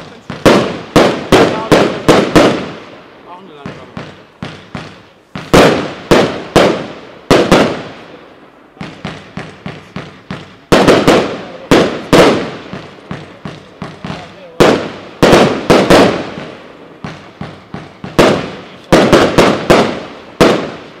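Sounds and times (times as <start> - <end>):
firework bangs: 0.0 - 21.0
firework pops: 3.6 - 7.9, 8.8 - 20.8.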